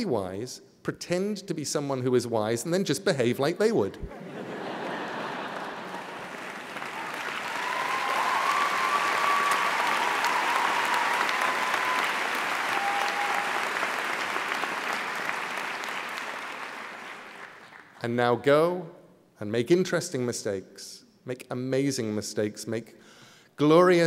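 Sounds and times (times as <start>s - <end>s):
audience applauding: 4.5s - 18.0s.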